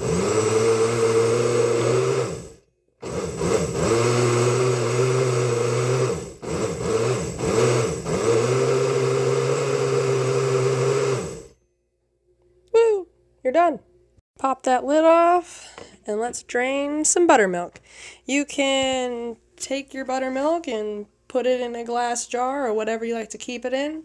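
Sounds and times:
blender motor churning: 0.0s - 11.6s.

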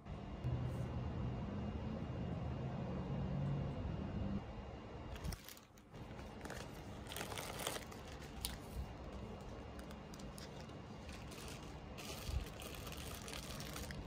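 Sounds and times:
plastic bag crinkling: 5.2s - 14.0s.

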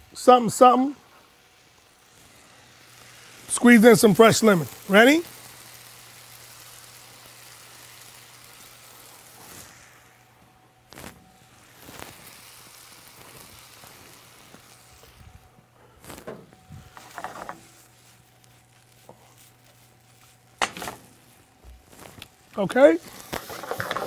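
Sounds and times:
rice sizzling in a skillet: 0.0s - 24.0s
pan scraping and clattering: 23.4s - 24.0s.

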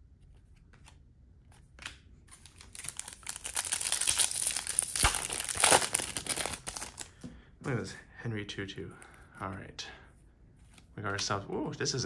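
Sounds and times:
foil wrapper crinkling: 2.4s - 7.1s.

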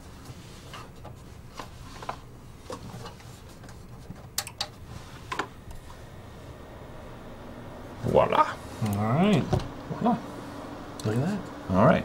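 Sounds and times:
computer fans humming: 0.0s - 12.0s.

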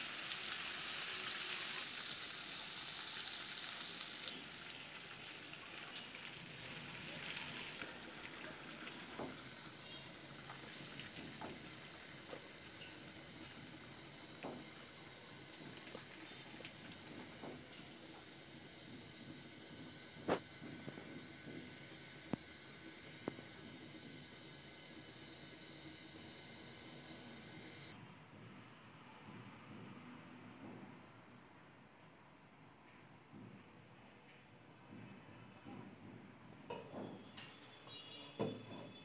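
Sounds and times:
chicken sizzling in hot oil: 0.0s - 27.9s.

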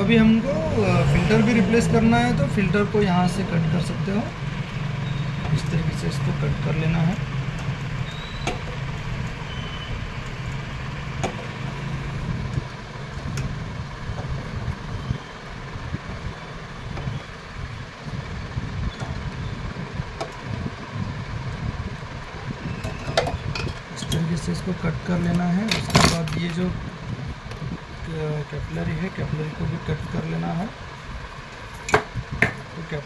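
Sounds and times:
low mechanical rumble: 0.0s - 33.0s.

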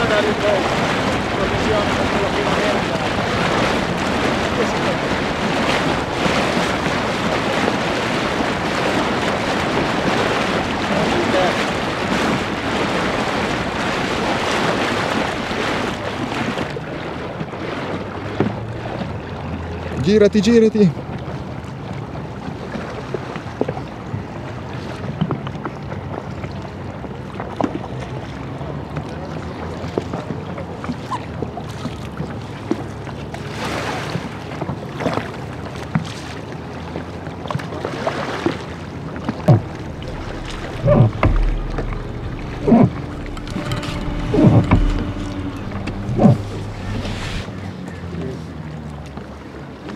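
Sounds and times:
paddle splashing in water: 0.0s - 49.9s
small waves lapping: 0.0s - 49.9s
wind on microphone: 39.0s - 47.5s
short loud thumps: 39.4s - 47.5s
sharp knock: 39.5s - 47.5s.

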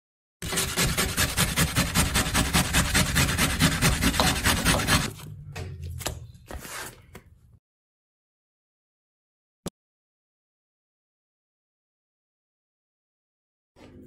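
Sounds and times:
onion grated on metal grater: 0.4s - 5.1s.

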